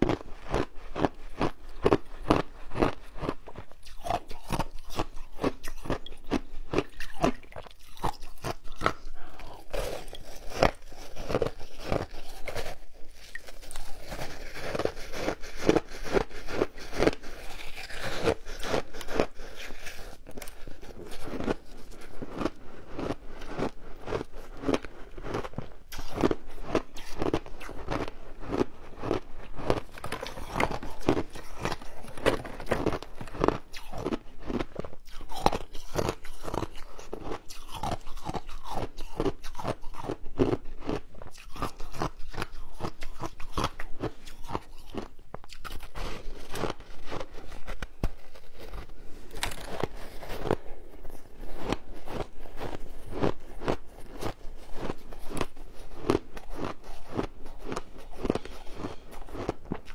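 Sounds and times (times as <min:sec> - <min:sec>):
crunching and chewing ice: 0:00.0 - 0:59.9.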